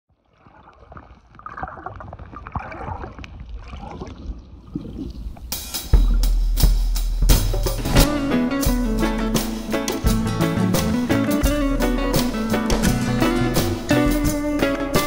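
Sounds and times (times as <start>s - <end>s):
water lapping and splashing: 0.1s - 6.4s
music with guitar and drums: 5.5s - 15.0s.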